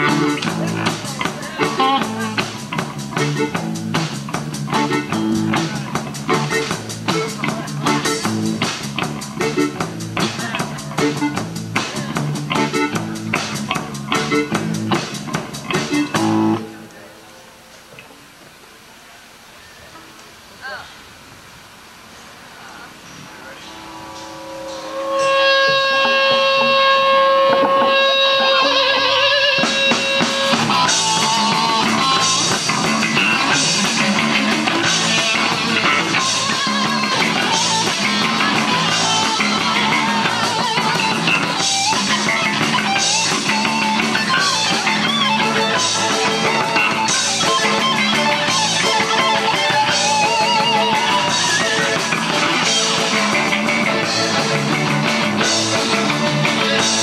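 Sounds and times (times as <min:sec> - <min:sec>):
rock band playing: 0:00.0 - 0:17.8, 0:23.4 - 0:57.0
electric guitar note ringing: 0:15.8 - 0:17.7, 0:23.3 - 0:57.0.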